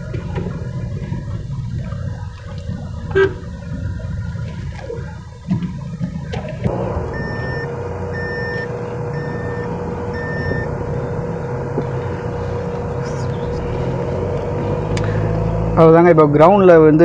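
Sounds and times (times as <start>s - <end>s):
car cabin hum: 0.0s - 16.4s
seat-belt reminder chime beeping: 7.1s - 10.7s.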